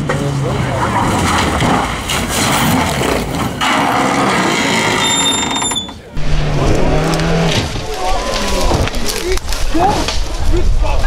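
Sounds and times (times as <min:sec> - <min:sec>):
rally car engine: 0:00.0 - 0:05.5, 0:06.1 - 0:09.0.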